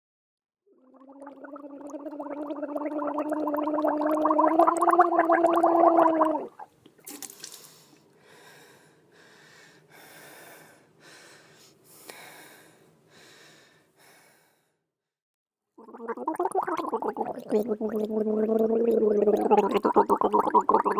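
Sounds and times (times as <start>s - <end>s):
low fluttering gargling: 15.9s - 20.9s.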